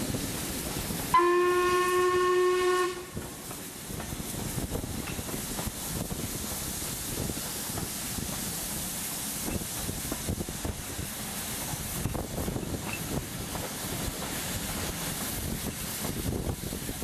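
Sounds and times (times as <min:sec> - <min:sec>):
steam train running: 0:00.0 - 0:17.0
wind buffeting microphone: 0:03.1 - 0:08.6, 0:09.4 - 0:17.0.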